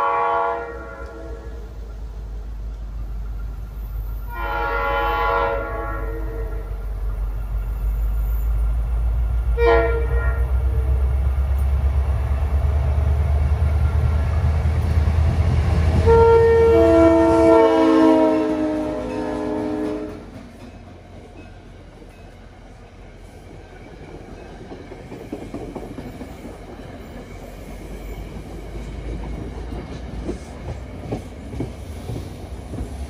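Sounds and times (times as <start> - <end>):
locomotive air horn blasts: 0.0 - 1.7, 4.3 - 6.9, 9.6 - 11.1, 16.0 - 20.3.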